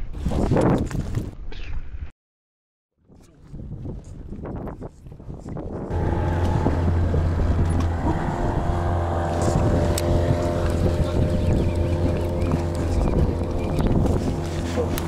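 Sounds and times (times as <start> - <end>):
wind noise on microphone: 0.0 - 2.1, 3.0 - 15.0
outboard motor running: 5.9 - 15.0.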